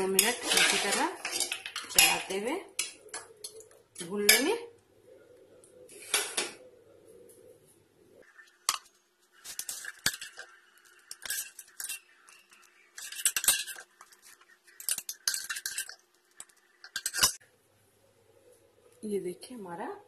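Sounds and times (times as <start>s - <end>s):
spoon scraping metal pot: 0.0s - 2.2s, 9.5s - 17.4s.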